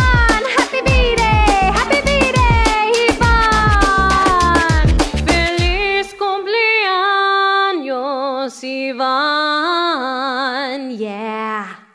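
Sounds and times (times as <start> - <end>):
drum beat: 0.0 - 5.9
person singing long held notes: 0.3 - 5.6.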